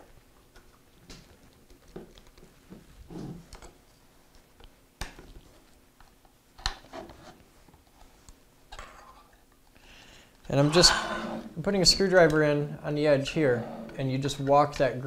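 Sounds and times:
screwdriver scraping metal lid: 10.5 - 11.6.

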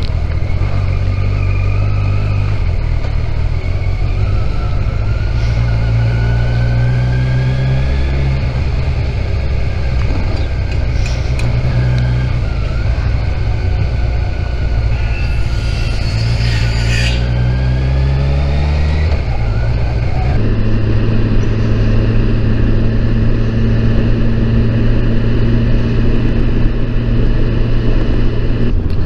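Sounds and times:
motorcycle engine under way: 0.0 - 29.0
heavy wind rush: 7.8 - 29.0.

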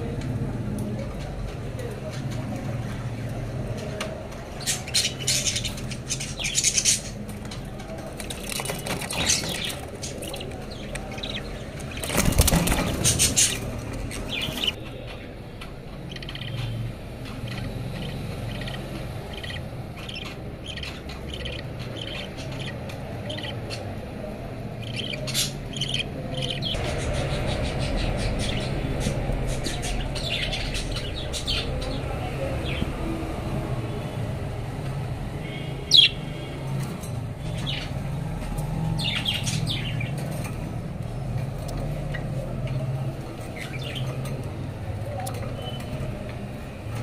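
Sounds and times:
bird wings fluttering: 12.0 - 13.4.

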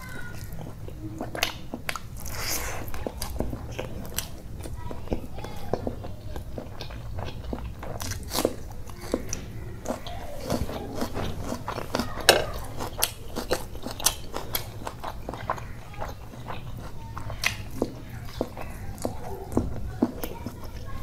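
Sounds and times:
chewing: 0.0 - 21.0
crunching raw onion: 6.4 - 21.0.

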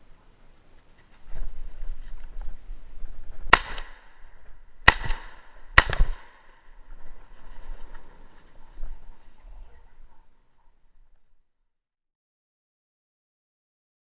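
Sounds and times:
brush rustling: 0.0 - 10.3
shotgun shots: 3.5 - 4.2, 4.8 - 6.5.

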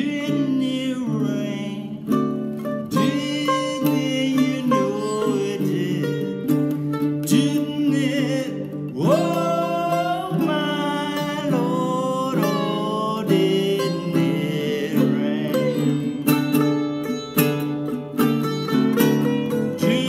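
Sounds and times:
baritone ukulele: 0.0 - 20.0
sitar: 15.5 - 20.0.

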